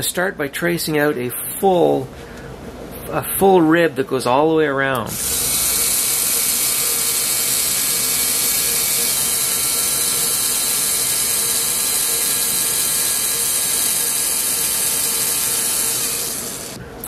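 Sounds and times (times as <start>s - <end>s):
pen motor and gears running: 5.0s - 16.8s.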